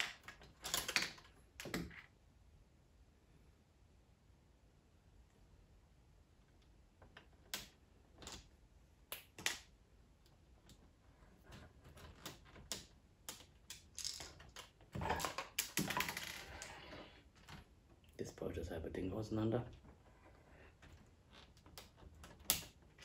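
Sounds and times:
plastic bricks clicking and clattering: 0.0s - 2.0s, 11.9s - 16.8s.

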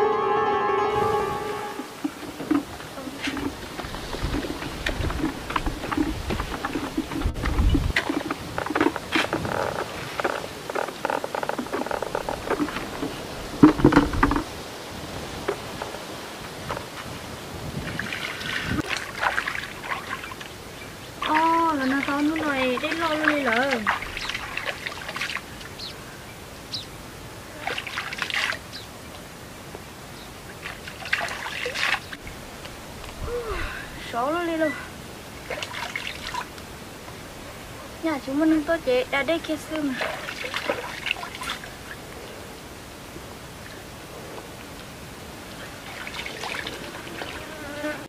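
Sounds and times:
water trickling: 0.9s - 43.9s, 44.7s - 47.9s
bucket knocking down: 1.0s - 9.5s, 11.7s - 14.5s
bucket handle clicking and creaking: 2.0s - 14.5s
hands splashing water: 17.8s - 20.5s, 21.2s - 25.8s, 27.6s - 28.6s, 30.5s - 32.2s, 35.4s - 36.7s, 39.8s - 41.9s.

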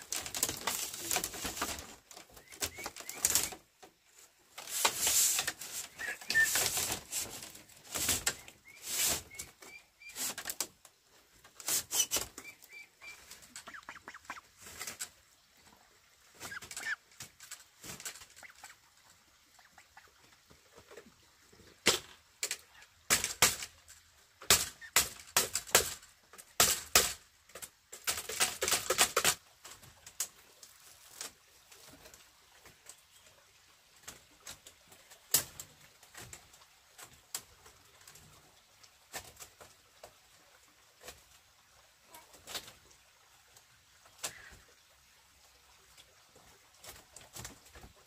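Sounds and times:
rapid cracking: 0.0s - 3.6s
bamboo knocking and clacking: 0.0s - 10.7s, 21.8s - 31.3s.

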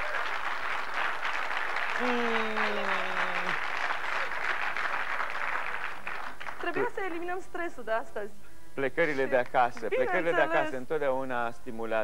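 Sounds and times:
audience applauding: 0.0s - 7.4s.

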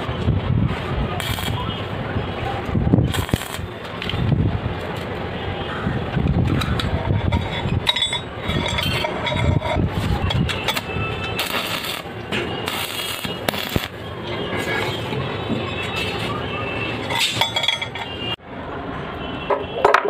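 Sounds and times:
welding arc crackling: 0.7s - 2.0s, 2.6s - 5.2s, 9.9s - 15.1s.

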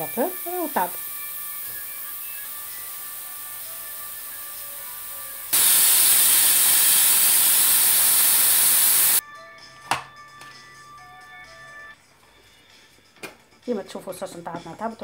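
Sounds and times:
pressure cooker steam hissing: 0.0s - 9.2s.

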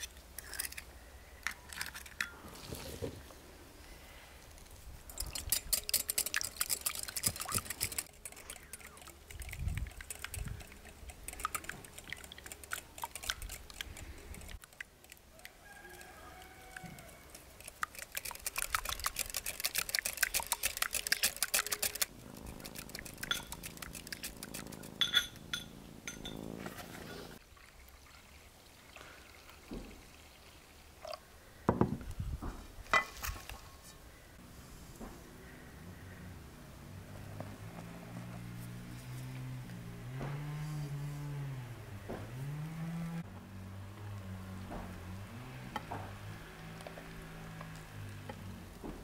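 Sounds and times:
whisk clinking against glass bowl: 23.2s - 23.7s.

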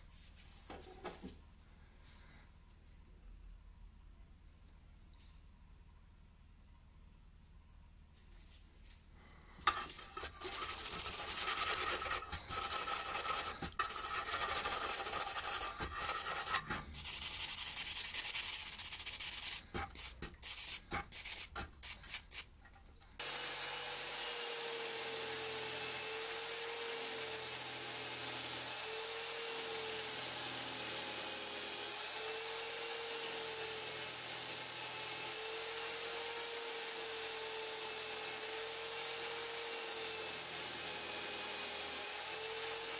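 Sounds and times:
wire brush wheel spinning: 9.7s - 22.5s
hand brush scrubbing metal blade: 9.7s - 22.8s.

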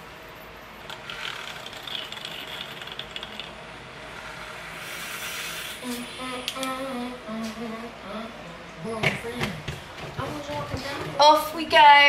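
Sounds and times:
milk frother whirring: 0.9s - 5.9s.

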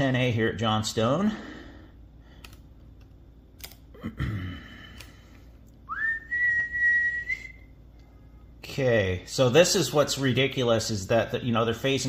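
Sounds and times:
keyboard and mouse clicks: 2.4s - 3.8s
man whistling one note: 5.9s - 7.7s.

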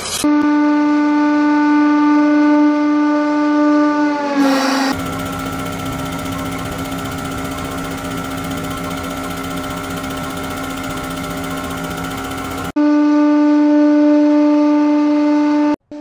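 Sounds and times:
hydraulic pump motor droning: 4.4s - 12.7s.

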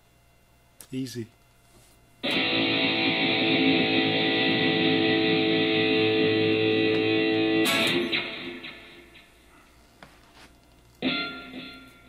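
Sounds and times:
electric guitar chord ringing: 2.2s - 9.4s, 11.0s - 12.0s.

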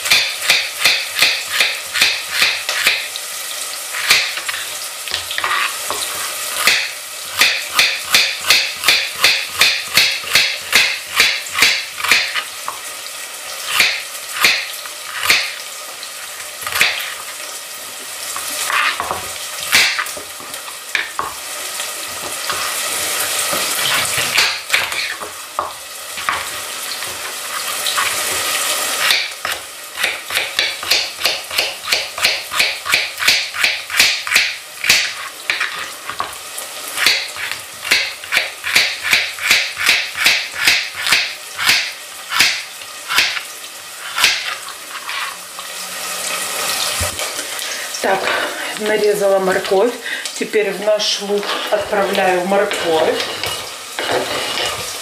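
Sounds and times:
knife chopping on cutting board: 0.0s - 3.1s, 4.0s - 12.9s, 13.7s - 15.6s, 16.6s - 17.2s, 18.4s - 21.4s, 23.4s - 36.4s, 37.0s - 45.4s
onion sizzling in a pot: 0.0s - 55.0s.

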